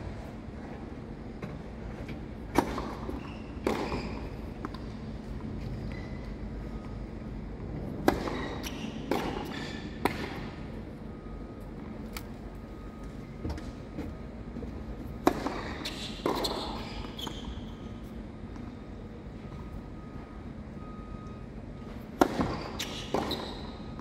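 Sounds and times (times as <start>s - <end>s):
tennis ball bouncing on court: 2.5s - 4.9s, 8.0s - 10.5s, 15.2s - 17.3s, 22.2s - 23.6s
tennis ball racquet hits: 8.0s - 10.5s, 15.2s - 16.5s.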